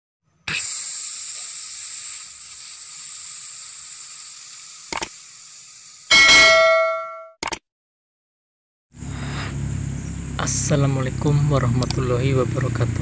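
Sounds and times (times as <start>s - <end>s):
sizzling sparkler-like hiss: 0.5s - 6.1s
loud bell chime: 6.1s - 7.4s.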